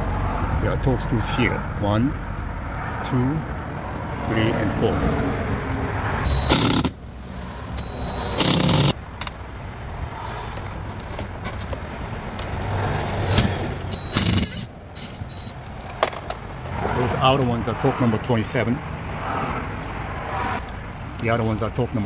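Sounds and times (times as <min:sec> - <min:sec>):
cordless drill spinning screws: 0:06.3 - 0:06.9, 0:08.2 - 0:09.0, 0:13.9 - 0:15.5.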